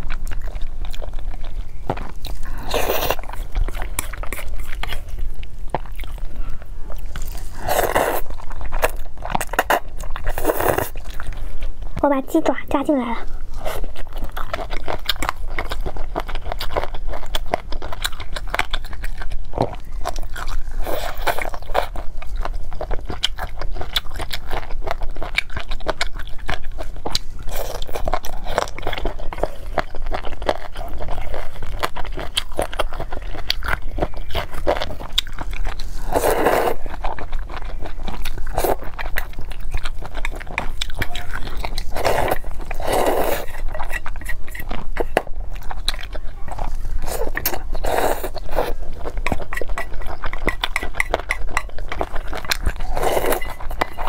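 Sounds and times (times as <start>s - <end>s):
chewing and biting: 0.0s - 12.0s, 13.3s - 54.0s
slurping noodles: 2.4s - 5.1s, 7.2s - 11.1s, 20.8s - 21.7s, 35.7s - 37.1s, 41.3s - 44.7s, 46.6s - 49.9s, 52.0s - 54.0s.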